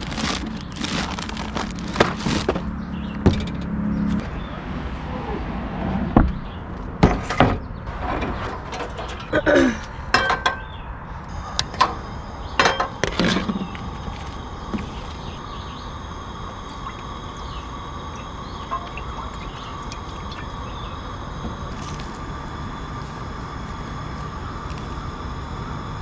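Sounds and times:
gas burner hissing: 0.0 - 2.5, 11.2 - 26.0
liquid pouring into pot: 16.3 - 22.0.

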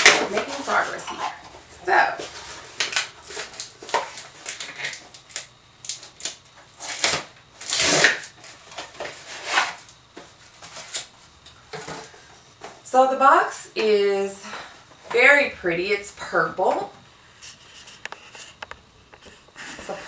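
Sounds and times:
paper wrapping rustling: 0.0 - 5.4
cardboard packaging tearing: 2.2 - 9.9.

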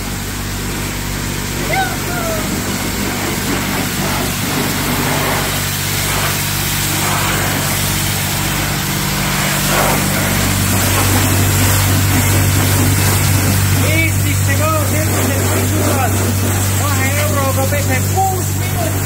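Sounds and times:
pressure washer pump humming: 0.0 - 19.0
water jet hissing on car: 0.0 - 19.0.

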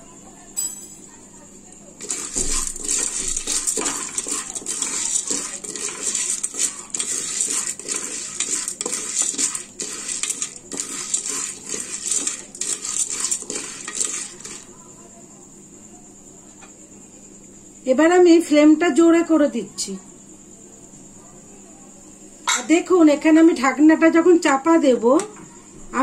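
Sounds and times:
kernels rattling in metal pot: 2.0 - 14.8.

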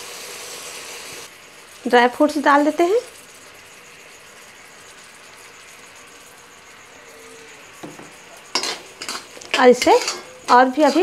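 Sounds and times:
faint sizzle in pan: 0.0 - 11.0
metal spatula scraping pan: 8.0 - 11.0.

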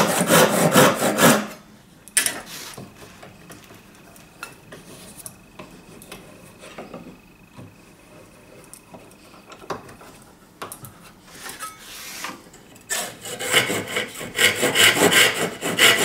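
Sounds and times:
handsaw cutting board: 0.0 - 1.6, 12.9 - 16.0.

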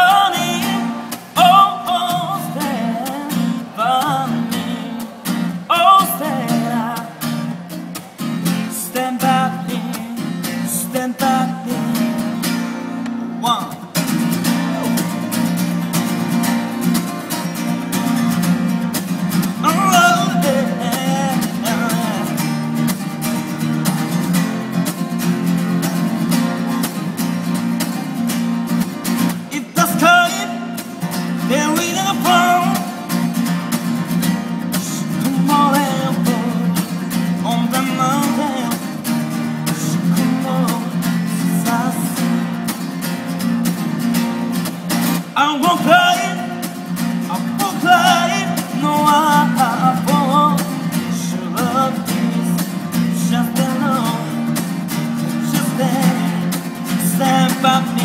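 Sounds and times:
man singing: 0.0 - 7.8, 8.4 - 12.5, 13.3 - 15.6, 19.3 - 22.8, 29.3 - 33.5, 34.4 - 42.6, 45.1 - 58.0
acoustic guitar strumming: 0.0 - 58.0.

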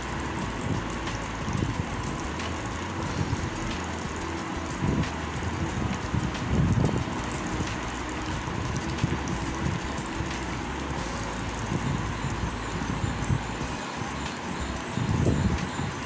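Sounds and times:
gas burner rumble: 0.0 - 16.0
nuts frying in a pan: 0.0 - 16.0.

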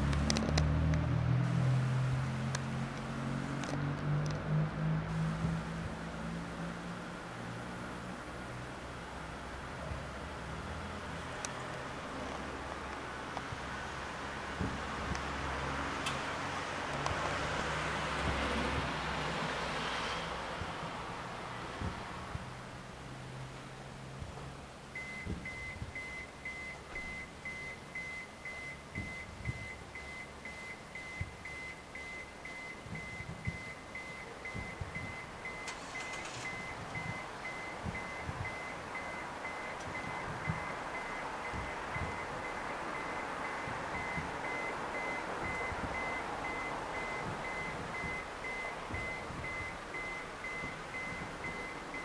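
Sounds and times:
high beeps: 25.0 - 52.0
faint low thumps: 36.6 - 44.5.

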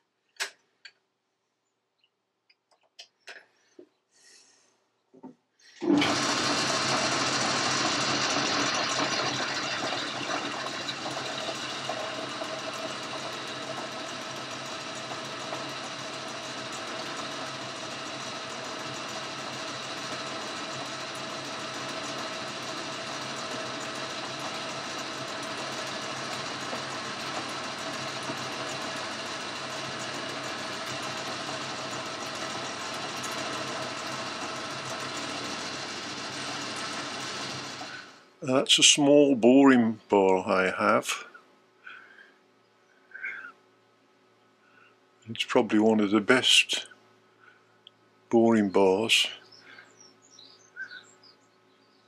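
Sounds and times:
lathe motor humming whir: 5.8 - 38.6.

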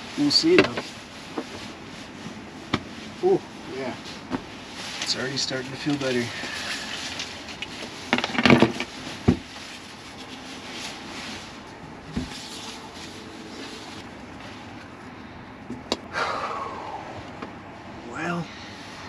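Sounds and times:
low steady hiss: 0.0 - 15.4, 16.4 - 19.0
sleeping bag rustling: 0.2 - 15.0.

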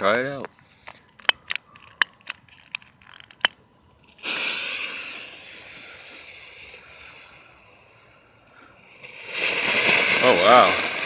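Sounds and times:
sharp clicks: 0.4 - 3.6
firework fountain hissing sparks: 4.0 - 11.0.

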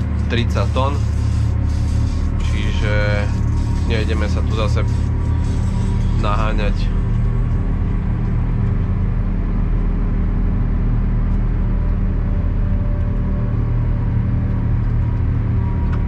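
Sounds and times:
tractor diesel engine under load: 0.0 - 16.0.

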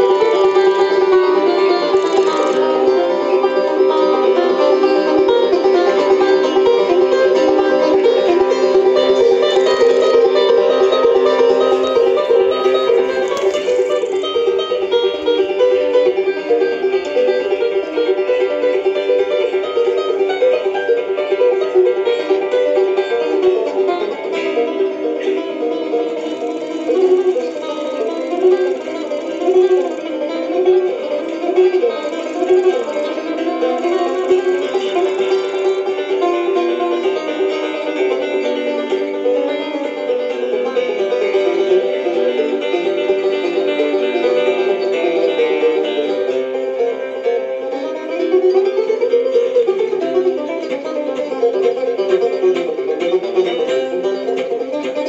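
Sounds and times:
acoustic guitar picking: 0.0 - 55.0
resonator banjo picking: 0.0 - 55.0.

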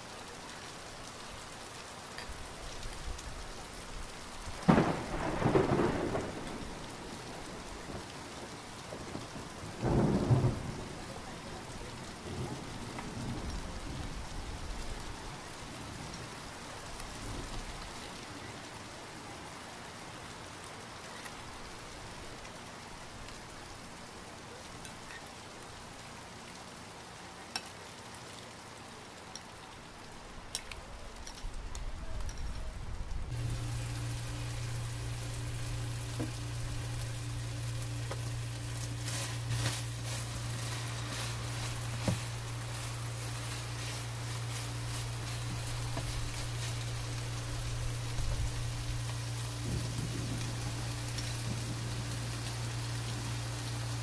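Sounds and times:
rain hiss: 0.0 - 54.0
low hum: 33.0 - 54.0.

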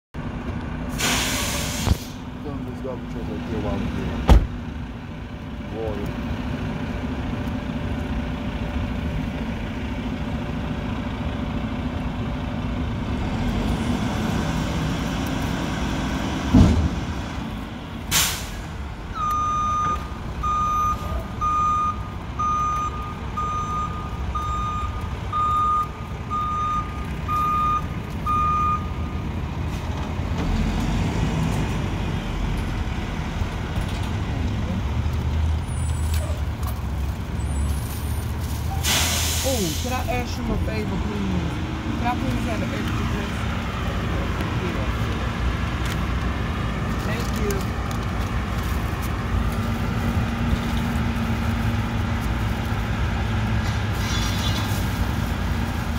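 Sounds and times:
diesel truck engine running: 0.2 - 55.9
air brake hiss: 0.9 - 2.2, 18.1 - 18.7, 38.7 - 40.0, 54.0 - 54.8
reverse alarm beeping: 19.2 - 29.2.

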